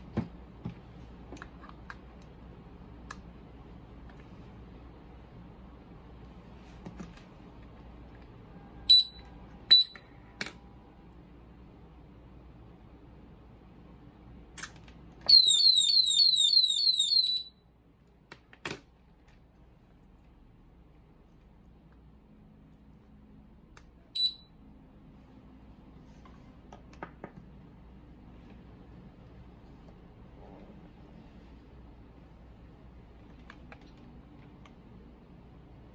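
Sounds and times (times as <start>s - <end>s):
alarm buzzer beeps: 8.9s - 10.0s, 24.2s - 24.5s
short electronic beep: 24.2s - 24.5s.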